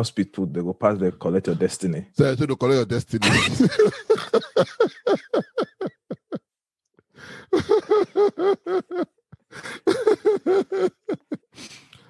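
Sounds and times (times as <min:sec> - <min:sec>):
men laughing hard: 0:03.2 - 0:06.4, 0:07.3 - 0:11.6.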